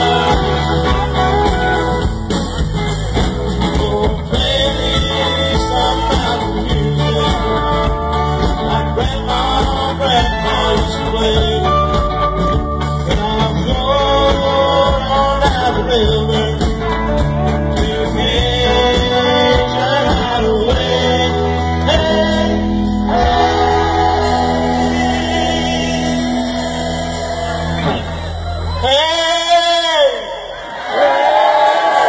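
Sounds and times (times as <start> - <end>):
live band playing: 0.0 - 30.6
person singing long notes: 3.6 - 16.8, 17.8 - 27.9.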